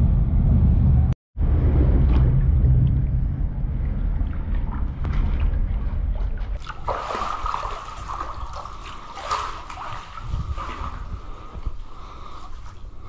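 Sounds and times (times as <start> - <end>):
low rumble: 0.0 - 6.6
water sloshing and trickling: 1.5 - 13.0.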